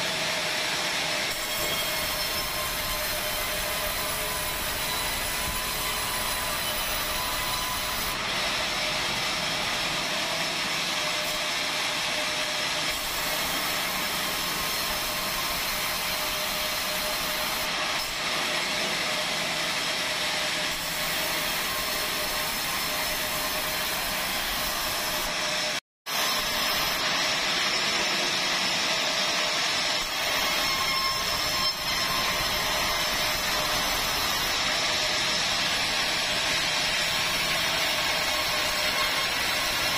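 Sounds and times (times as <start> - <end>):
bandsaw cutting wood: 0.0 - 39.9.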